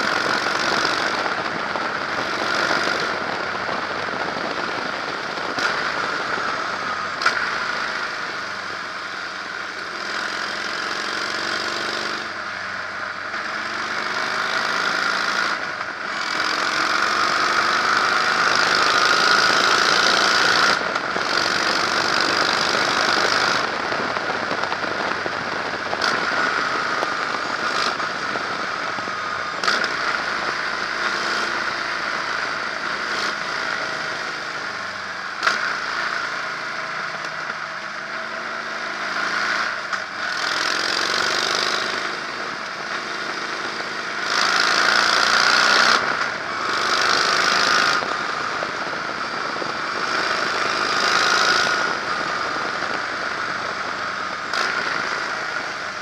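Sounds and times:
wind rushing on microphone: 0.0 - 7.2, 18.8 - 30.8, 47.3 - 56.0
motorcycle engine running: 0.0 - 56.0.

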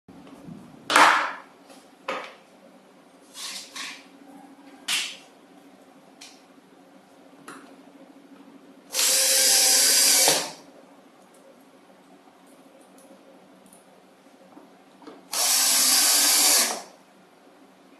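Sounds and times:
cordless drill driving a screw: 8.9 - 10.6, 15.3 - 16.9.

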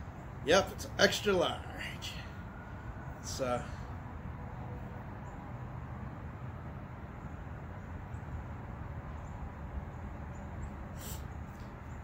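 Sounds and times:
low outdoor background rumble: 0.0 - 12.0.

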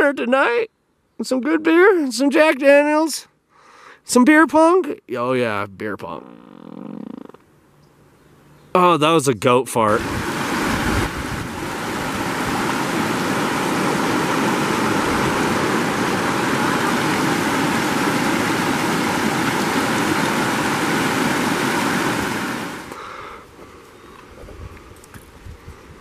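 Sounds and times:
steady rushing hiss: 9.8 - 26.0.

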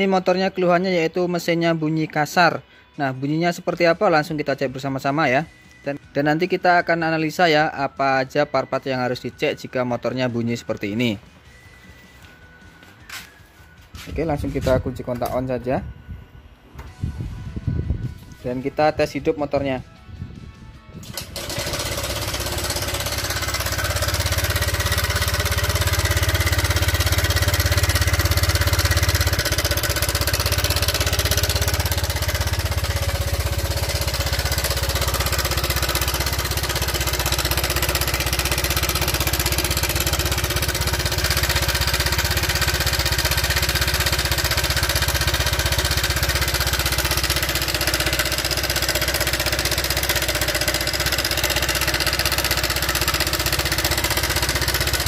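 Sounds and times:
rough scooter engine idling: 21.0 - 55.0.

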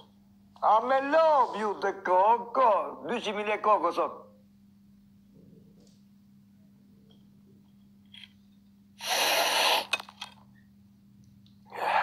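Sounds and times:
loud breath: 9.0 - 10.0
person snorting through nose: 9.0 - 10.0.

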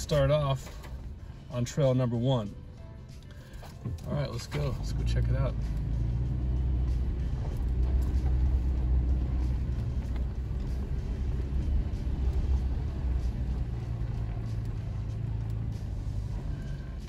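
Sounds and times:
low rumble of engine and tyres: 0.0 - 17.0.

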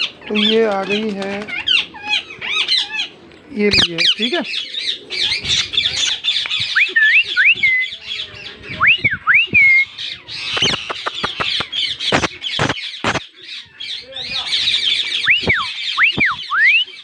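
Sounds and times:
parakeets calling harshly: 0.0 - 6.8, 9.9 - 17.0
rising whistled notes: 15.2 - 16.9.

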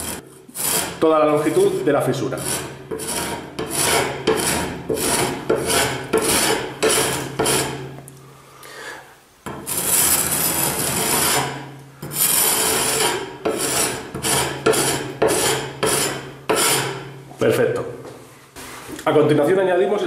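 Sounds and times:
trowel scraping plaster: 0.0 - 8.0, 9.5 - 17.2.

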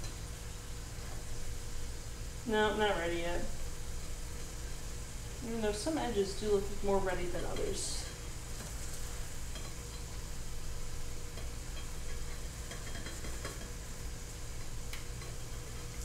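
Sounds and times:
food sizzling in pans: 0.0 - 16.0
steady low hum: 0.0 - 16.0.

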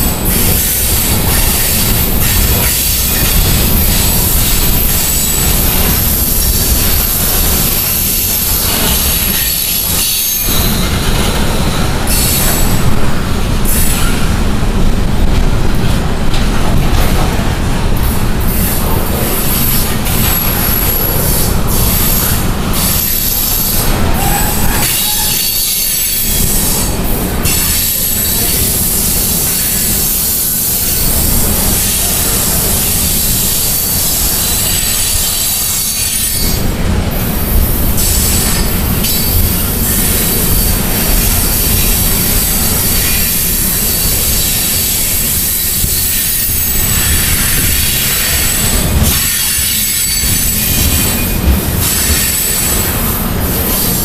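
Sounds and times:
train wheels rumbling on rails: 0.0 - 54.0
high-pitched wheel squeal: 0.2 - 12.7, 19.5 - 26.9, 42.4 - 53.1.

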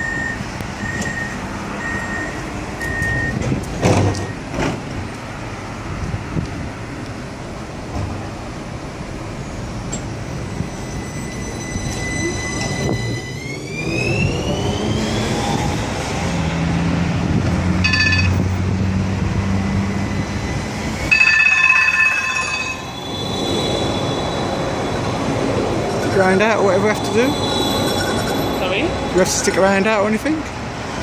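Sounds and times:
low tram motor hum: 0.0 - 31.0
tram motor whine: 7.6 - 31.0
steel wheels squealing on rails: 9.3 - 16.4, 19.5 - 30.1.

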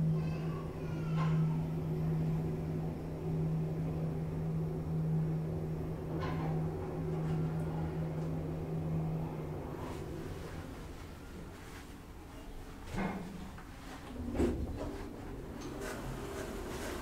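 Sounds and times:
lift car humming: 0.0 - 17.0.

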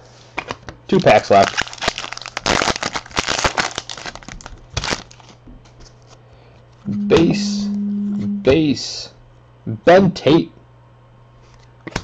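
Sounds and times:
wrapper tearing and crinkling: 1.0 - 5.4.

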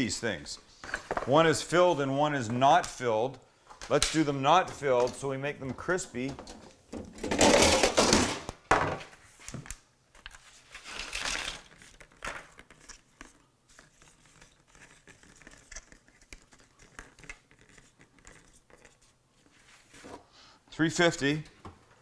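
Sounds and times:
plastic packaging crinkling: 10.4 - 13.1.

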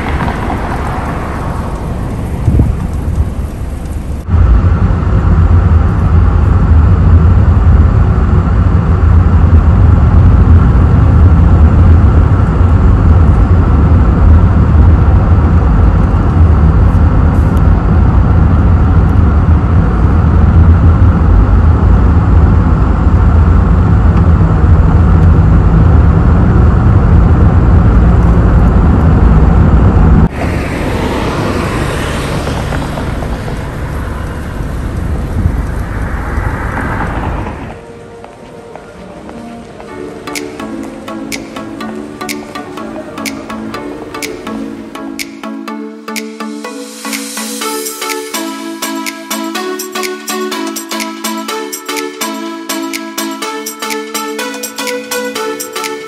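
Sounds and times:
car engine and tyre rumble: 0.0 - 41.7.

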